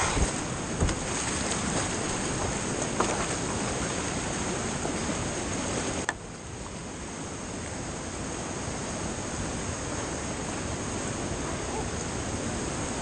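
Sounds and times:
sharp splashes or knocks: 0.0 - 4.0
whitewater rapids rushing: 0.0 - 13.0.

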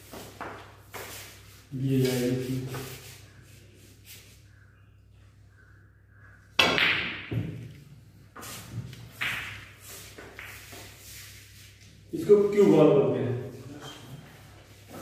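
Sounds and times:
ball hitting ball: 6.6 - 7.7
cue striking ball: 6.6 - 7.7.

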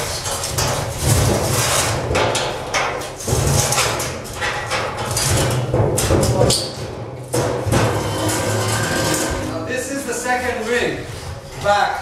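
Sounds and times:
metal panels knocking: 0.0 - 9.7
steel ring scraping on concrete: 7.9 - 9.7.

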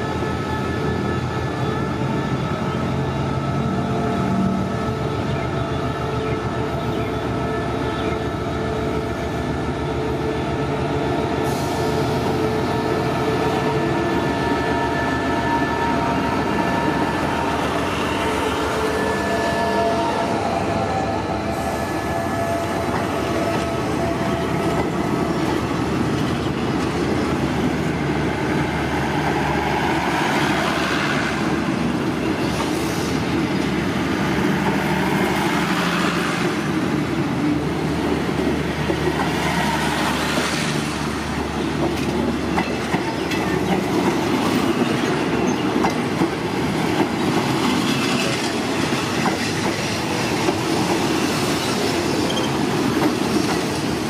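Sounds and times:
train wheels clattering over rail joints: 41.7 - 54.0.

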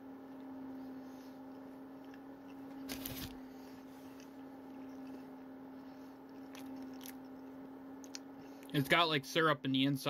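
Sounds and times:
steady low hum: 0.0 - 10.0
person chewing: 4.0 - 5.3, 6.2 - 8.7.

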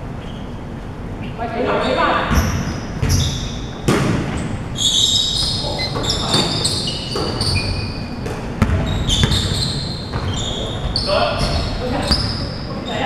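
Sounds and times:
basketball bouncing: 2.3 - 4.4, 5.4 - 12.4
sneaker squeaks on wooden court: 2.3 - 13.0.

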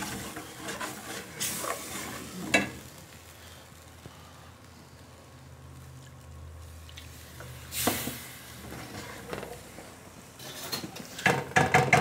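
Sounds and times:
wooden spoon stirring sauce in pan: 0.0 - 2.9
burst of hissing: 0.0 - 5.2, 7.1 - 9.9.

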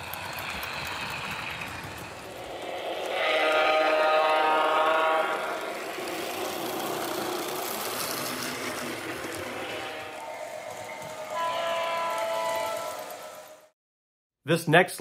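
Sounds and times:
model train rumbling past: 0.0 - 13.7
model locomotive horn blast: 3.0 - 13.6.

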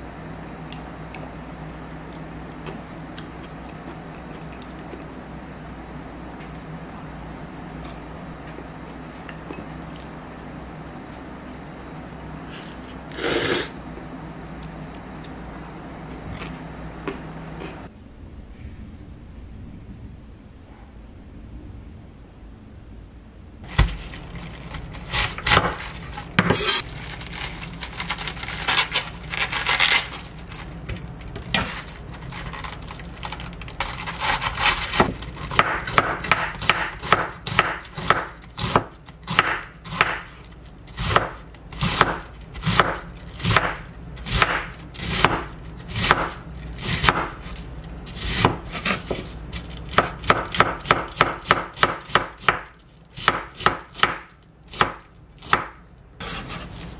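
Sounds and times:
knife shredding cabbage on board: 23.7 - 56.9.

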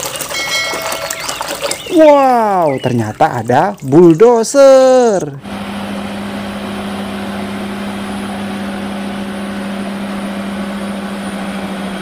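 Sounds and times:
bulldozer diesel engine running: 4.9 - 12.0.

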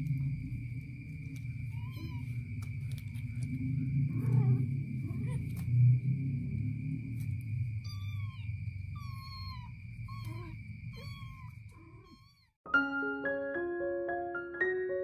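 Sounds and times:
kitten mewing: 7.8 - 12.5
piano music: 12.7 - 15.0.

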